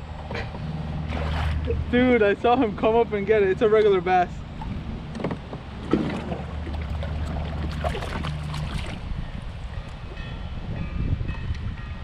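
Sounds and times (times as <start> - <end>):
fish splashing in water: 1.0 - 1.8, 5.8 - 9.2.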